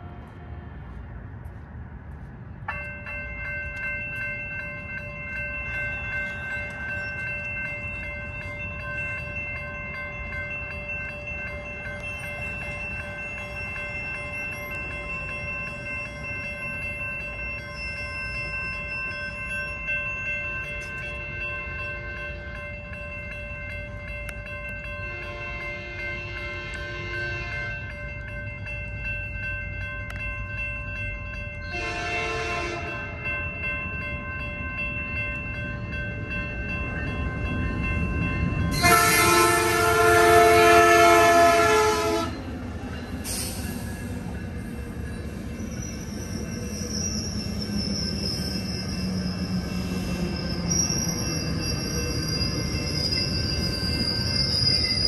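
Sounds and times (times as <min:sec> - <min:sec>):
crossing bells ringing: 0:00.0 - 0:55.0
train rumbling: 0:00.0 - 0:55.0
train horn blast: 0:31.7 - 0:33.0, 0:38.8 - 0:42.4
wheels squealing: 0:45.2 - 0:55.0.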